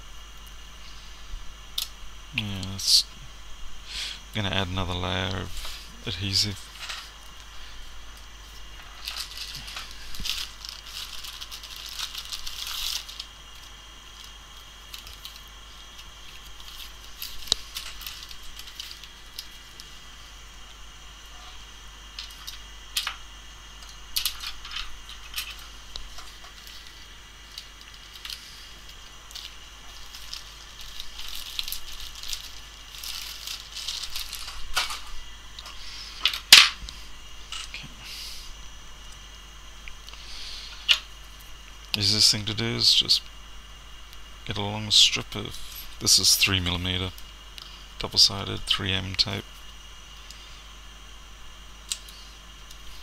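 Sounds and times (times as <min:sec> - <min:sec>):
rummaging through packaging: 0:08.8 - 0:14.3, 0:29.3 - 0:35.1.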